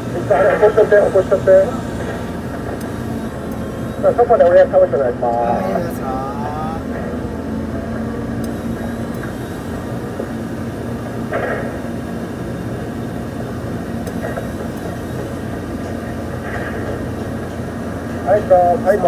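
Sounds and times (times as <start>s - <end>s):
crane diesel engine running: 0.0s - 19.0s.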